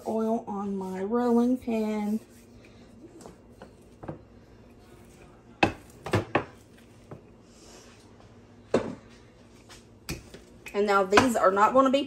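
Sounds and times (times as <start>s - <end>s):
rolling pin working dough: 0.0s - 8.0s.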